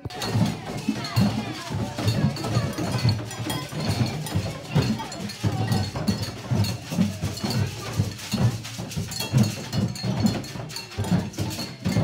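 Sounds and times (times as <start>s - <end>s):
hollow thumps on plastic jugs: 0.0s - 12.0s
metal cups clinking: 0.0s - 12.0s.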